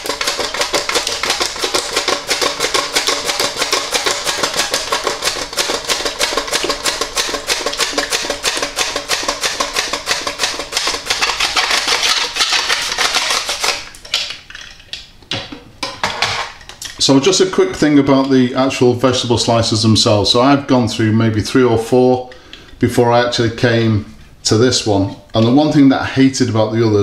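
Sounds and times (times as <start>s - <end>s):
potato slicing on mandoline: 0.0s - 14.0s.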